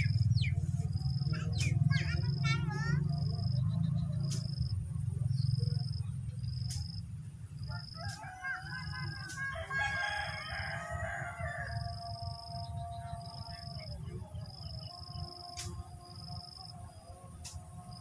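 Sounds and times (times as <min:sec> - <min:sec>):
low rumble: 0:00.0 - 0:07.7
rooster crowing: 0:07.6 - 0:14.0.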